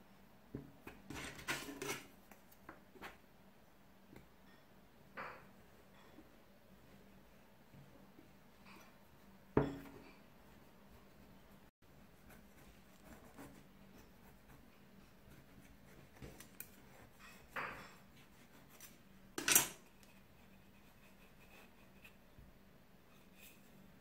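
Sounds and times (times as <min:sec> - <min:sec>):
knife scraping metal cake pan: 0:01.1 - 0:02.1.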